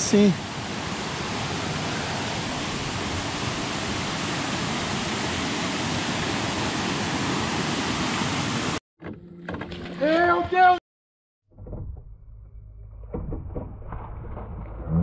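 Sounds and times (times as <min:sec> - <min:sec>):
water rushing over rocks: 0:00.0 - 0:08.8.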